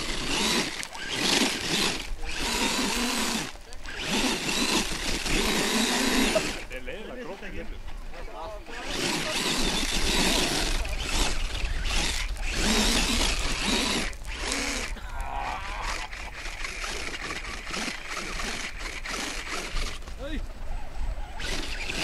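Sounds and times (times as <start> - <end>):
toy car motor under load: 0.0 - 6.8, 8.6 - 20.3, 21.4 - 22.0
tyres scrabbling on loose stones: 0.0 - 20.8.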